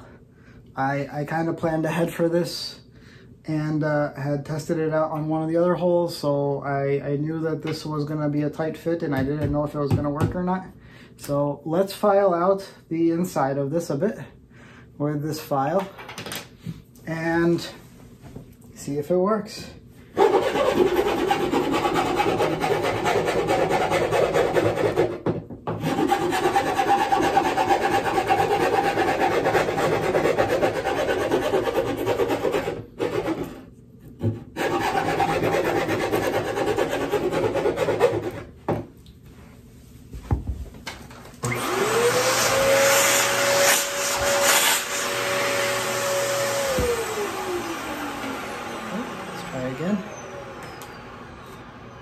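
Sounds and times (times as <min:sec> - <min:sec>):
file rasping on wood: 0:20.2 - 0:38.5
vacuum cleaner motor whine: 0:41.4 - 0:52.0.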